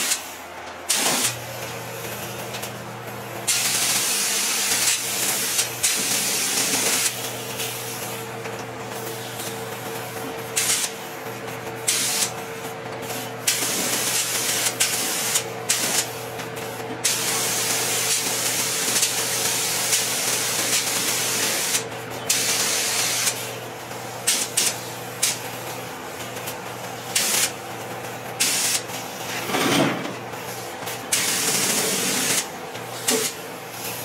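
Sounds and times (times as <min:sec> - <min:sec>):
paint spray gun hissing: 0:11.9 - 0:12.3, 0:17.0 - 0:23.5, 0:27.1 - 0:27.5, 0:28.4 - 0:28.8, 0:31.1 - 0:34.0.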